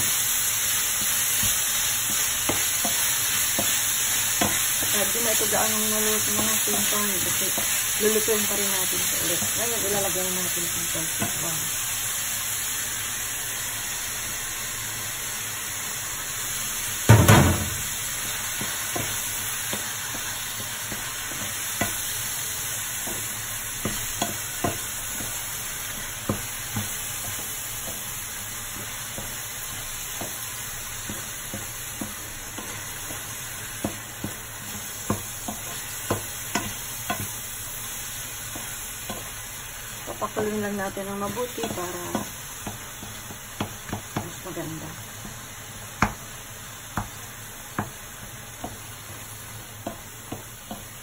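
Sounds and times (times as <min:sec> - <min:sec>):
meat sizzling in a frying pan: 0:00.0 - 0:51.0
loud thump: 0:17.1 - 0:17.9.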